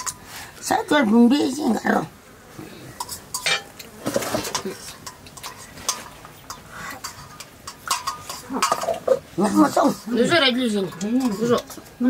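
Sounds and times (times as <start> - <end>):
metal spoon scraping a pot: 0.0 - 0.3, 2.9 - 12.0.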